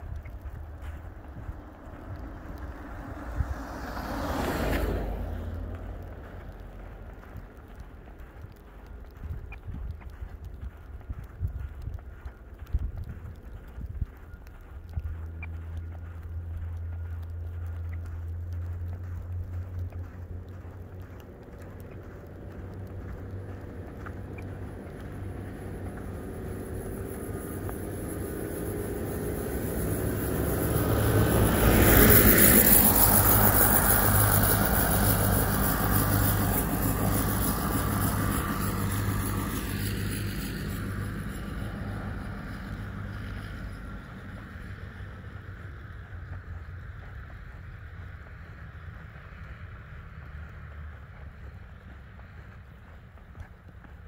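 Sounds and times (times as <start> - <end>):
wind noise on microphone: 0.0 - 3.9, 4.8 - 15.9
truck passing on slushy road: 0.0 - 54.0.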